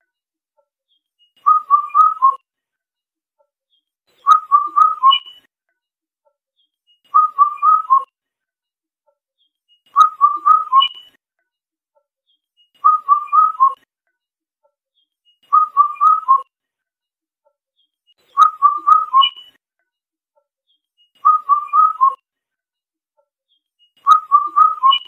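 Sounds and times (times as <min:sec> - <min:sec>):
cuckoo whistled call: 0:01.4 - 0:02.4, 0:04.2 - 0:05.5, 0:07.1 - 0:08.1, 0:09.9 - 0:11.2, 0:12.8 - 0:13.8, 0:15.4 - 0:16.5, 0:18.4 - 0:19.6, 0:21.2 - 0:22.2, 0:24.0 - 0:25.0.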